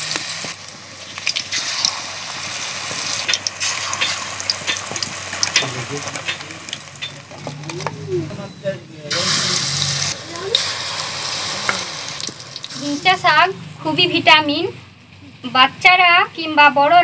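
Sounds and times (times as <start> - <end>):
leaves deep-frying in hot oil: 0.0 - 8.3, 9.0 - 14.2.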